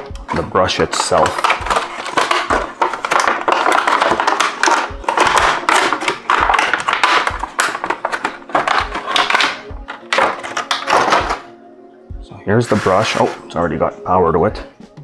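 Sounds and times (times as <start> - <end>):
plastic packaging crinkling: 0.0 - 11.5
background music with low beat: 0.0 - 15.0.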